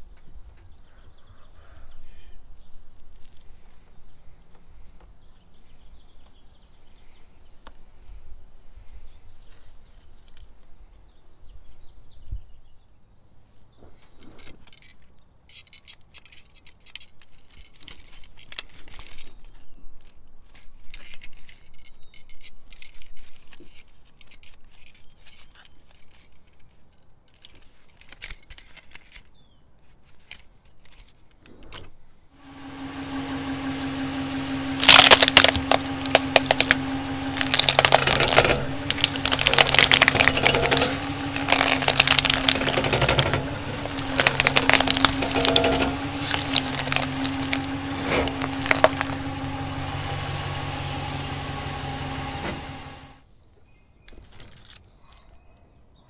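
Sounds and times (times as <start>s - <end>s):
crinkly rustling: 14.0s - 31.6s, 33.1s - 53.1s, 54.2s - 55.3s
plastic toy clicks and rattles: 14.4s - 29.3s, 34.8s - 49.2s.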